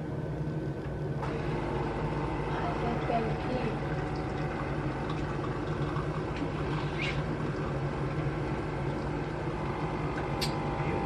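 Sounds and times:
kitchen appliance humming: 0.0 - 11.0.

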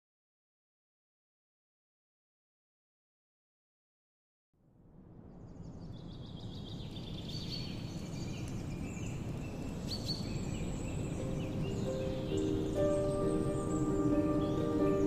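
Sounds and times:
birds whistling and chirping: 6.5 - 15.0
music: 11.0 - 15.0.

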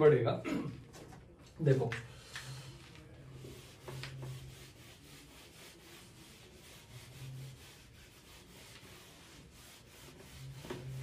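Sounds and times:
duster rubbing on whiteboard: 2.7 - 11.0.

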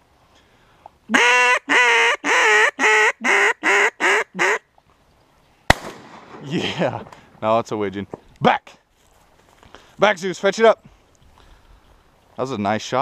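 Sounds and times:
duck call quacks: 1.1 - 4.6
shotgun shot: 5.7 - 6.7.

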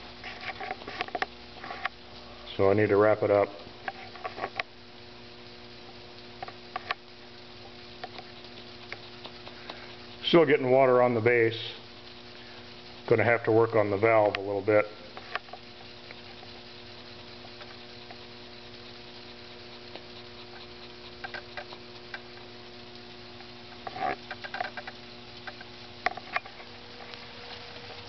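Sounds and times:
faint steady hum: 0.0 - 28.0
small steam engine ticking: 5.9 - 26.4.

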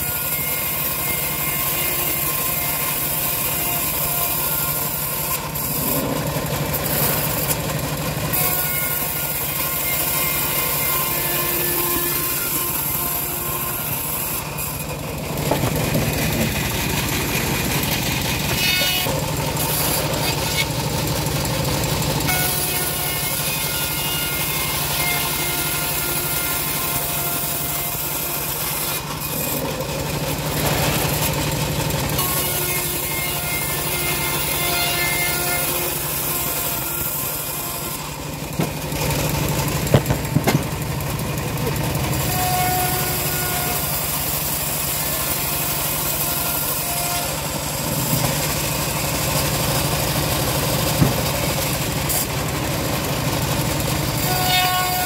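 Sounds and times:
saw blade hissing through wood: 0.0 - 20.8, 32.2 - 40.5
bandsaw mill drone: 0.0 - 55.0.

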